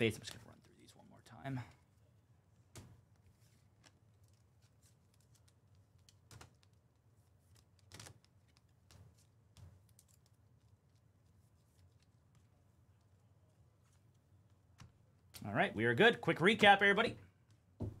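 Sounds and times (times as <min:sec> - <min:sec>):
trading cards being flipped: 0:02.8 - 0:12.5.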